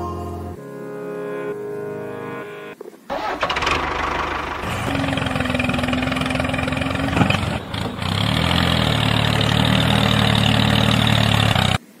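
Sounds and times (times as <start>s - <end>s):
tractor engine idling: 3.1s - 11.8s.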